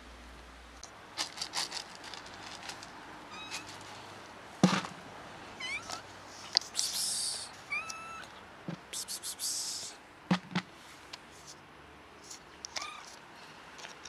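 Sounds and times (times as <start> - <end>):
loud sharp knock: 4.6 - 5.0, 10.3 - 10.7
cat meowing: 5.6 - 6.0, 7.7 - 8.4, 12.8 - 13.1.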